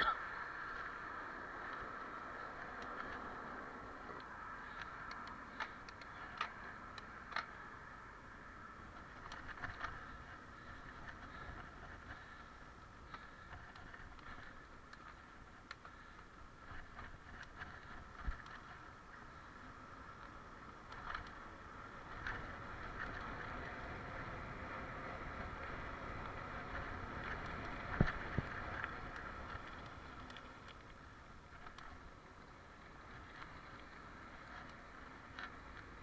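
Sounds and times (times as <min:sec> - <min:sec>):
bike tyres rumbling on asphalt: 0:00.0 - 0:36.0
wind noise: 0:20.9 - 0:32.1.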